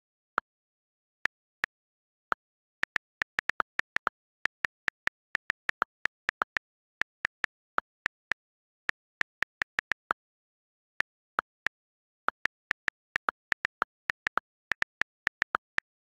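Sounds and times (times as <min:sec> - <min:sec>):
on-screen keyboard clicks: 0:02.4 - 0:10.2, 0:11.0 - 0:16.0.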